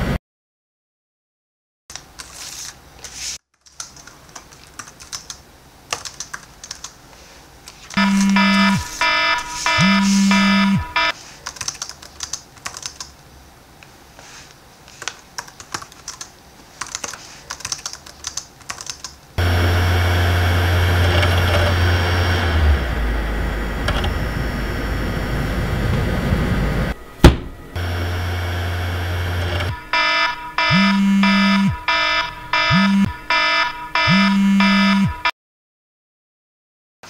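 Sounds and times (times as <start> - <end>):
electronic beeping: 8.0 - 11.1, 27.8 - 35.3
microwave oven humming: 19.4 - 29.9.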